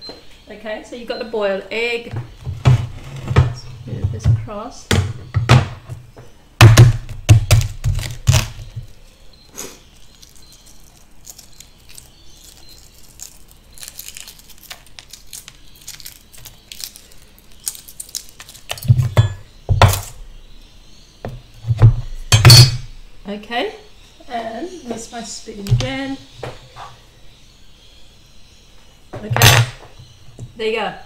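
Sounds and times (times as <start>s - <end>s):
eggshell crackling: 6.6s - 20.7s.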